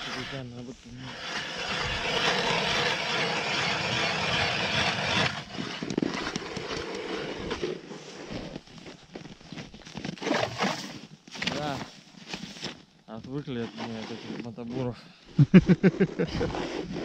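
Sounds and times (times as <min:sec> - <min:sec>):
petrol ice auger drilling: 0:00.0 - 0:07.9.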